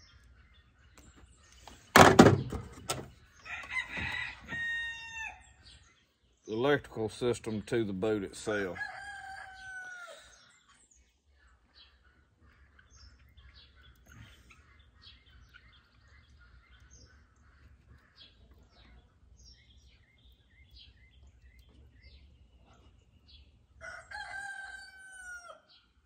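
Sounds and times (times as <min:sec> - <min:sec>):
small birds chirping: 0:00.0 - 0:26.0
rooster crowing: 0:03.4 - 0:05.5, 0:08.7 - 0:10.3, 0:23.8 - 0:25.7.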